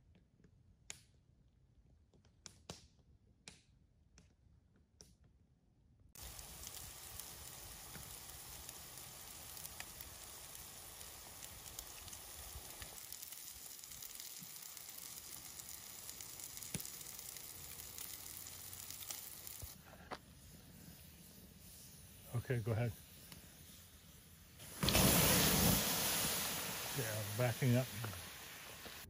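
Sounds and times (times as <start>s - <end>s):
chicken sizzling on grill: 6.2s - 29.0s.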